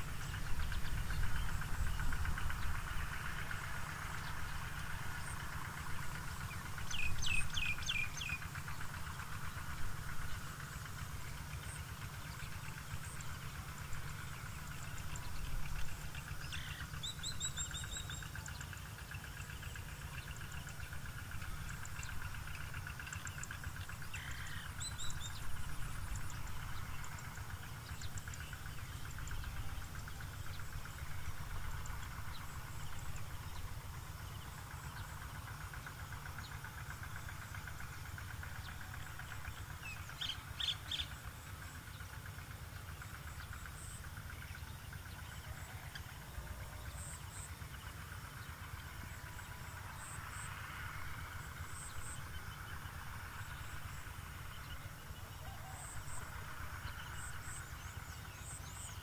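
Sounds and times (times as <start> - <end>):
bird chirps: 6.3 - 9.6, 14.2 - 35.2, 36.2 - 42.1.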